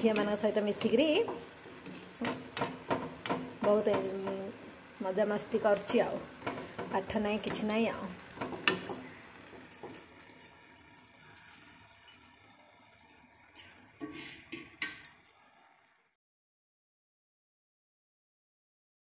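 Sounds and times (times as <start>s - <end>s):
wire strainer clinking on pan: 0.0s - 4.4s, 5.7s - 13.9s
fritters sizzling in hot oil: 0.0s - 11.6s.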